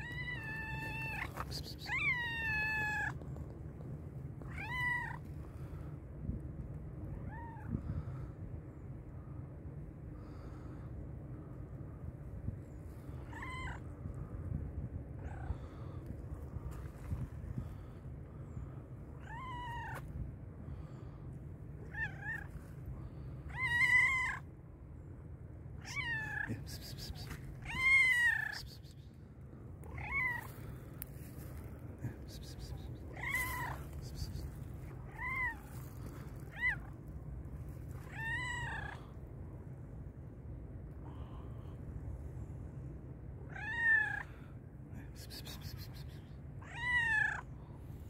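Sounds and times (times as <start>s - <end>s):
cat meowing: 0.0s - 3.2s, 4.5s - 5.2s, 19.2s - 20.1s, 25.8s - 28.7s, 32.5s - 34.3s, 35.1s - 36.9s, 38.0s - 39.0s, 45.6s - 47.4s.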